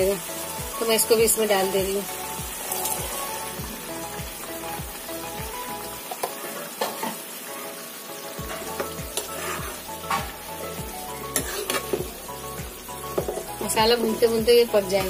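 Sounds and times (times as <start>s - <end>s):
food sizzling and bubbling: 0.0s - 15.0s
spoon scraping and clinking pan: 8.4s - 10.4s, 11.3s - 12.0s.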